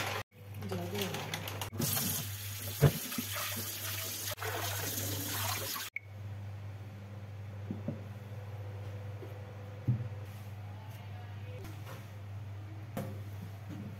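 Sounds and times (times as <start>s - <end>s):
tap water running into colander: 1.8s - 5.9s.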